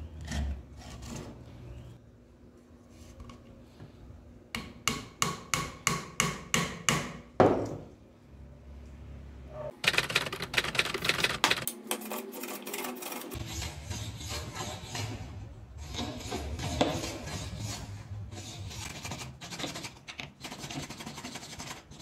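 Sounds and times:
rasping rubbing strokes on wood: 0:12.3 - 0:19.9.

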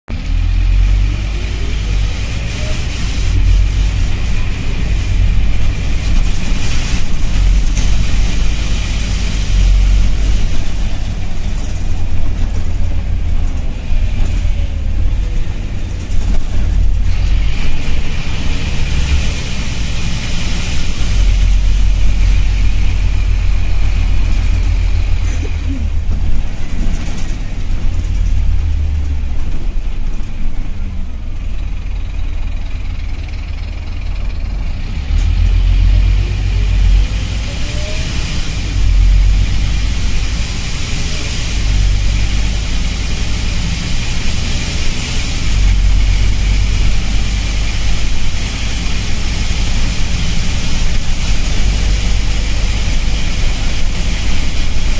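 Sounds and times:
bus diesel engine: 0:00.0 - 0:54.9
road noise: 0:00.0 - 0:54.9
air leak hissing: 0:35.5 - 0:54.9.

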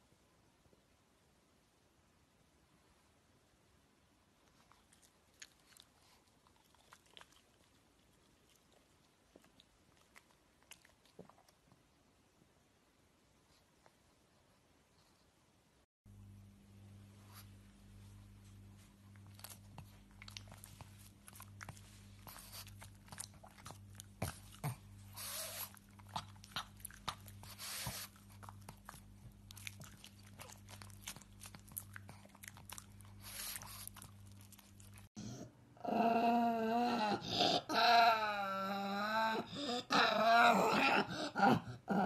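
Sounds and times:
dog chewing wetly: 0:04.6 - 0:11.7, 0:19.1 - 0:35.2
dog growling and grumbling: 0:35.2 - 0:42.0.

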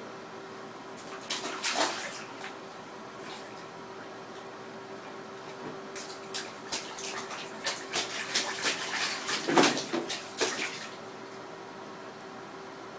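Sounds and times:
baby splashing bathwater: 0:01.0 - 0:02.6, 0:06.0 - 0:11.1.

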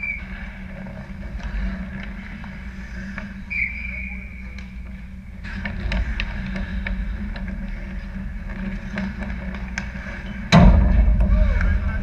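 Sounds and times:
skates scraping on ice: 0:00.0 - 0:10.5
rink rumble: 0:00.0 - 0:12.0
sticks and puck clicking: 0:04.4 - 0:10.5.

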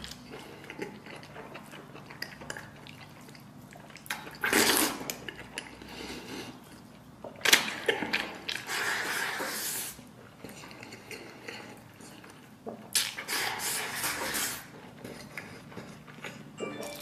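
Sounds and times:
wet chewing: 0:00.0 - 0:09.4.

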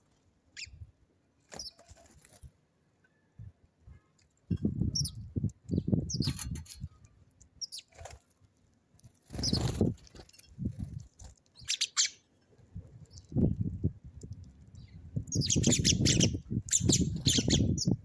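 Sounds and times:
sparrows chirping: 0:00.6 - 0:00.8, 0:04.5 - 0:07.0, 0:07.6 - 0:08.0, 0:09.3 - 0:12.3, 0:14.7 - 0:18.0
wings fluttering: 0:01.4 - 0:02.6, 0:07.7 - 0:14.8.

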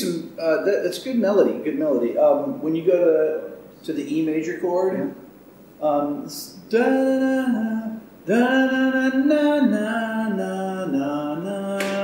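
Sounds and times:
man singing: 0:05.9 - 0:12.0.

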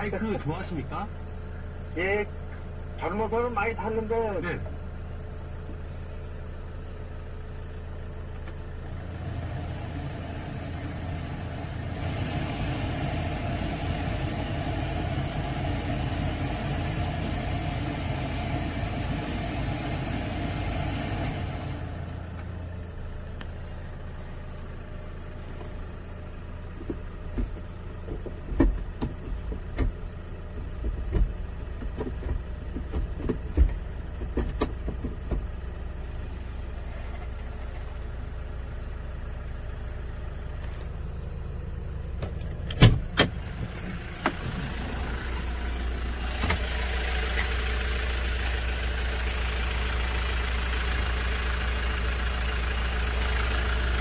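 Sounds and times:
diesel engine idling: 0:00.0 - 0:54.0
gear lever knocks and clunks: 0:26.8 - 0:35.6, 0:42.2 - 0:44.6.

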